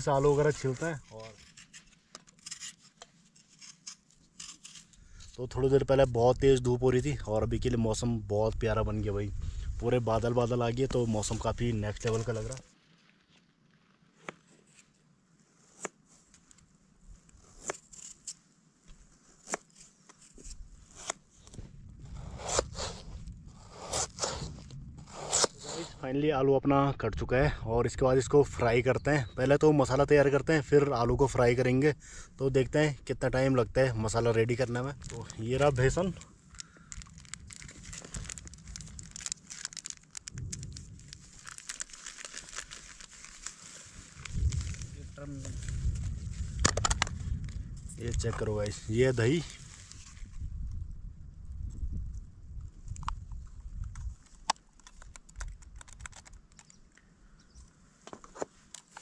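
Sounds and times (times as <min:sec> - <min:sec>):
plastic packet crinkling: 0:34.7 - 0:45.9, 0:54.8 - 0:56.8.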